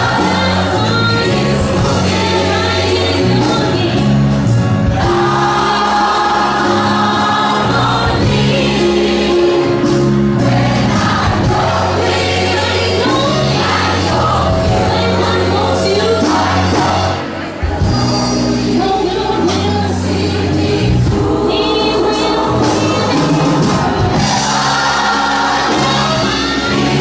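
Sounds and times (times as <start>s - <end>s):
woman singing lead vocal: 0.0s - 4.2s, 11.9s - 17.1s, 17.8s - 27.0s
bass line: 0.0s - 27.0s
drums: 0.0s - 27.0s
gospel choir singing: 0.0s - 27.0s
piano: 0.0s - 27.0s.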